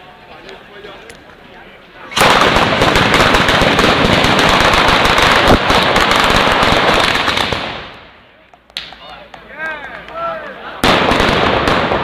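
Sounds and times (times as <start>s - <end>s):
firecrackers rattling bangs: 2.1s - 8.2s, 10.8s - 12.0s.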